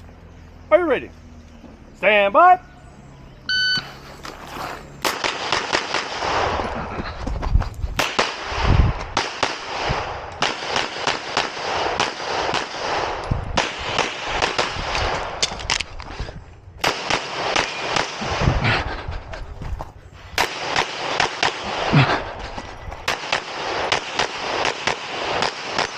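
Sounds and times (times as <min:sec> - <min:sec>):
rapid pistol shots: 0:05.0 - 0:06.6, 0:08.0 - 0:15.4, 0:16.8 - 0:18.6, 0:20.4 - 0:22.2, 0:23.1 - 0:25.9.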